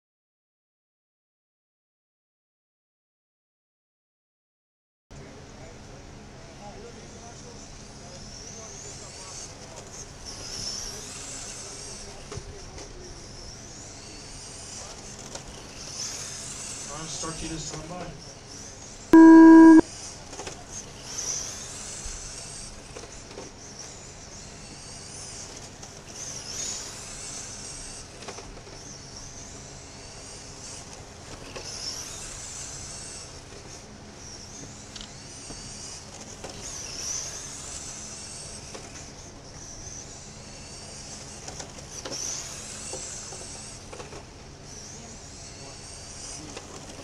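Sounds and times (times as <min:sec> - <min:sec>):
rc car motor whining: 0:08.3 - 0:17.9, 0:21.0 - 0:47.0.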